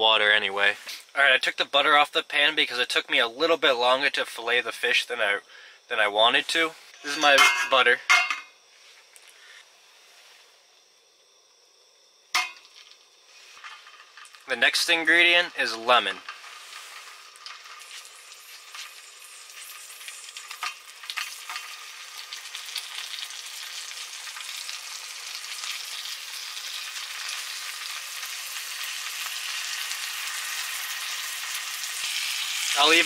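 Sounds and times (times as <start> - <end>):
fish sizzling in butter: 12.4 - 33.0.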